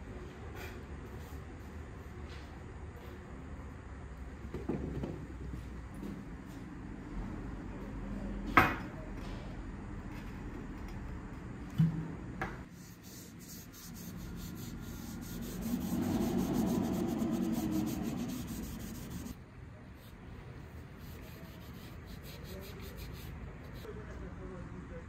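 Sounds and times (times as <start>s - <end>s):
sandpaper rubbing on metal blade: 12.7s - 19.4s, 20.8s - 23.9s.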